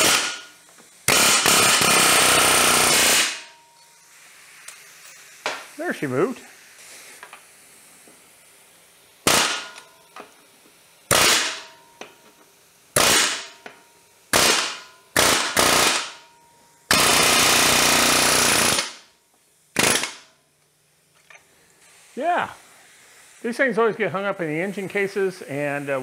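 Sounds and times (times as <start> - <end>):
air hammer hammering metal: 0.0 - 3.6, 9.2 - 10.0, 11.1 - 12.2, 13.0 - 19.1, 19.8 - 20.3.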